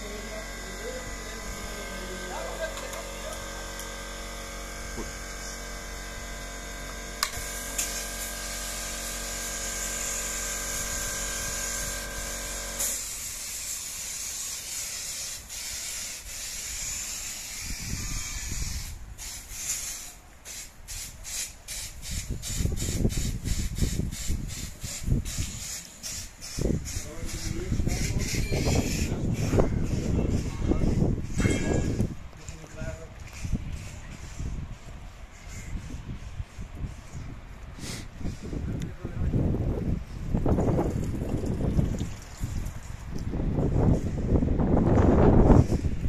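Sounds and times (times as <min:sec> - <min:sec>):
fire extinguishers hissing: 0:00.0 - 0:29.4, 0:37.8 - 0:38.6
electrical buzz: 0:00.0 - 0:32.2.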